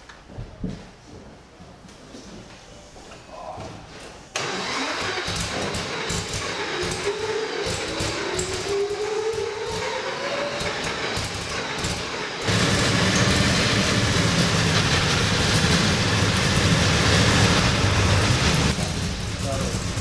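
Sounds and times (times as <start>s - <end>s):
cooling fan spinning: 4.4s - 20.0s
racing engine running: 4.4s - 20.0s.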